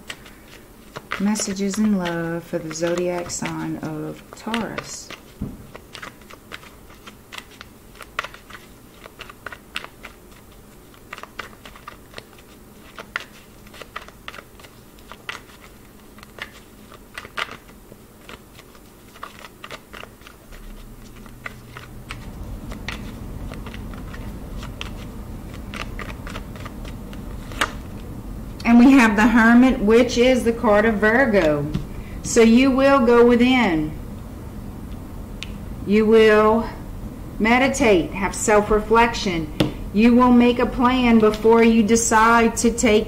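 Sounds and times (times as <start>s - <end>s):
cards being shuffled: 0.0s - 28.1s, 41.1s - 42.2s
low hum: 20.3s - 42.8s.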